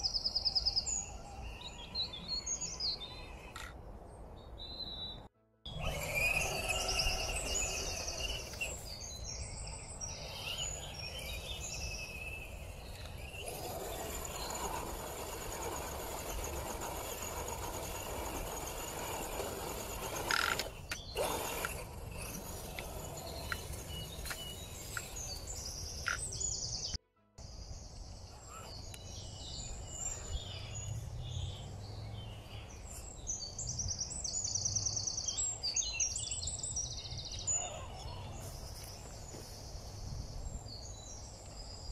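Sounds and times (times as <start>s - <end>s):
birds chirping: 0.0s - 41.9s
rc car driving over gravel: 5.7s - 27.0s.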